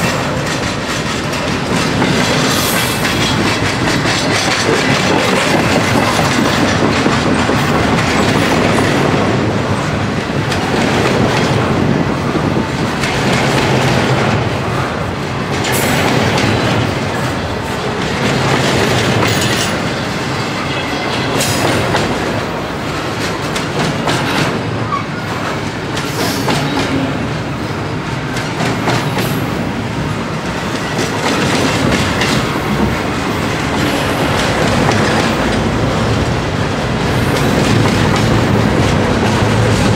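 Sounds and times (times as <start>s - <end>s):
wheels clattering over rail joints: 0.0s - 9.4s
train rumbling past: 0.0s - 39.9s.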